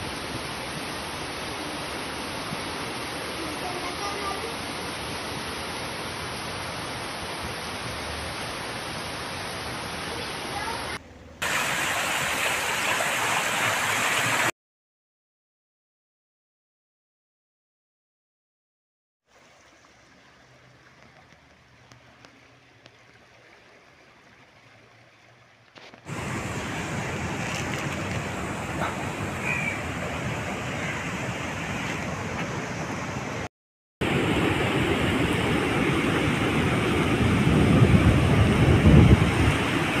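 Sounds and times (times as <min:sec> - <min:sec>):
river rushing: 0:00.0 - 0:14.5, 0:19.4 - 0:40.0
surf breaking on a beach: 0:26.0 - 0:33.4, 0:34.0 - 0:40.0.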